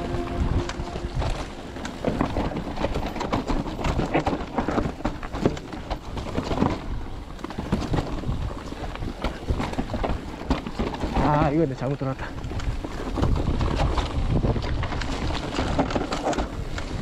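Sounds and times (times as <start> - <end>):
bike tyres on dirt and rocks: 0.0 - 17.0
bike clattering and knocking: 0.1 - 17.0.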